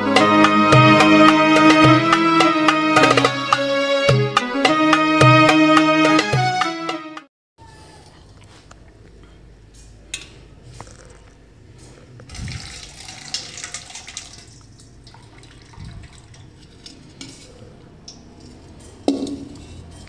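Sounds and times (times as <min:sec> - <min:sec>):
liquid pouring through strainer: 0:12.3 - 0:17.5
steel utensils clinking: 0:13.0 - 0:20.0
metal pot lid clink: 0:19.0 - 0:19.8.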